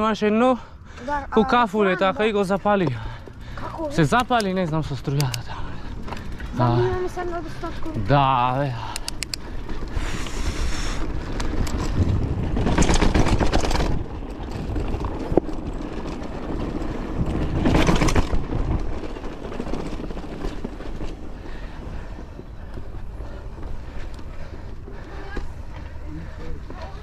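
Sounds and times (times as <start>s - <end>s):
bike tyres rumbling and rattling: 0.0s - 27.0s
wind buffeting microphone: 9.4s - 26.0s.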